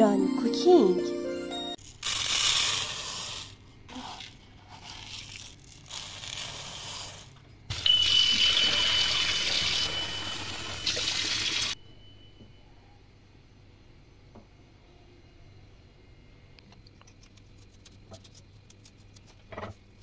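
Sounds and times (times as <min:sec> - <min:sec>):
rice grains poured into metal pot: 0:02.0 - 0:03.6
water rushing into pot: 0:07.7 - 0:11.8
thin high whistle: 0:07.7 - 0:13.1.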